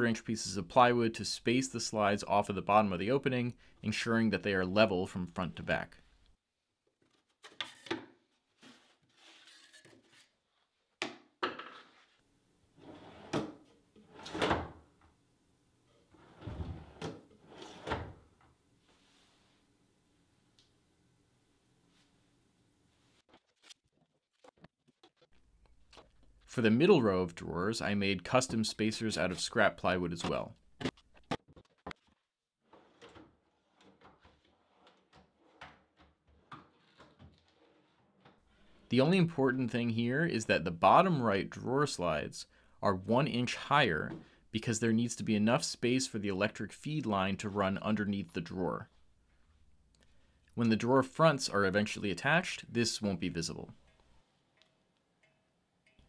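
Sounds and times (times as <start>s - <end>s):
drawers sliding: 12.8s - 14.8s, 16.1s - 18.3s, 32.7s - 38.4s.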